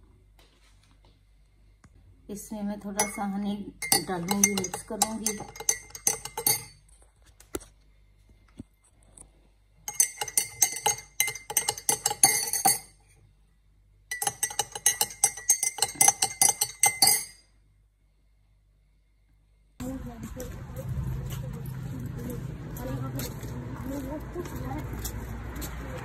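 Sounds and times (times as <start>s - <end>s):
faint glass ringing: 3.0s - 6.8s, 9.9s - 13.1s, 14.1s - 17.6s
spoon clinking against glass: 3.0s - 6.8s, 9.9s - 13.0s, 14.1s - 17.5s.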